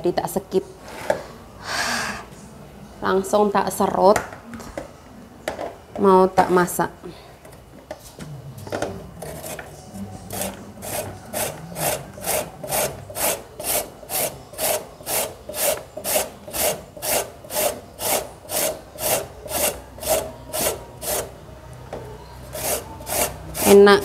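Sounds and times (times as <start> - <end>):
papaya rasping on grater: 9.2 - 9.6, 10.3 - 21.4, 22.4 - 23.9.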